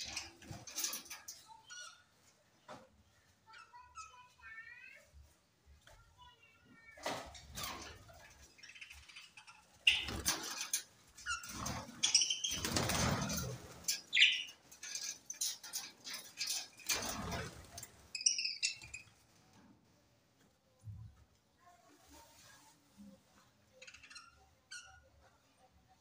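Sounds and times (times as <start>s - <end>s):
wings flapping: 9.8s - 14.2s
high chirping calls: 12.0s - 12.7s, 14.0s - 14.6s, 18.2s - 19.1s.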